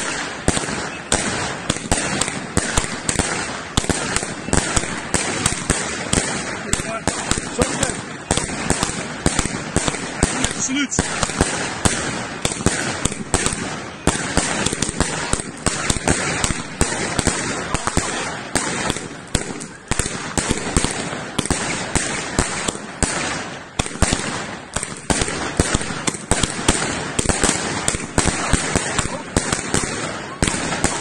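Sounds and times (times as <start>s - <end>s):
fireworks barrage bangs: 0.0s - 31.0s.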